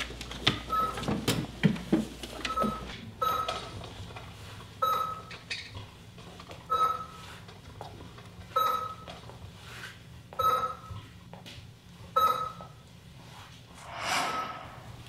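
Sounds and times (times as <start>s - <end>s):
patient monitor beeping: 2.5s - 3.6s, 4.8s - 5.3s, 6.7s - 7.2s, 8.6s - 9.1s, 10.4s - 11.0s, 12.2s - 12.8s
soft whoosh: 13.7s - 15.0s.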